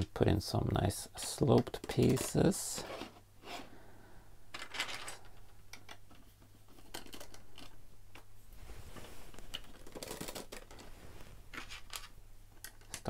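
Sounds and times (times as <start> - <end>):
plastic bricks clicking: 4.5 - 8.3, 9.3 - 10.8, 11.5 - 13.0.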